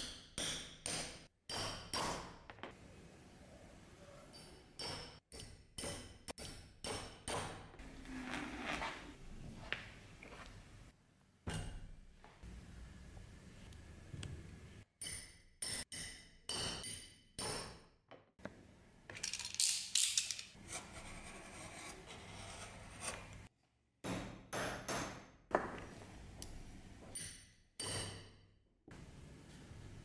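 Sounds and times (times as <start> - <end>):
metal fittings clinking and scraping: 19.2 - 20.6.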